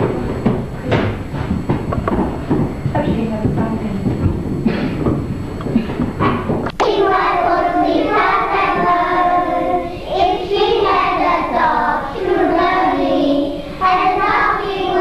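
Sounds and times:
children singing in unison: 6.8 - 15.0.

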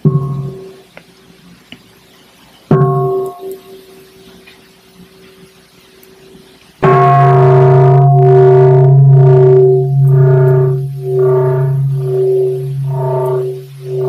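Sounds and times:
meditation bell ringing: 0.0 - 0.8, 2.7 - 4.2, 6.8 - 14.0
low sustained drone: 6.8 - 14.0.

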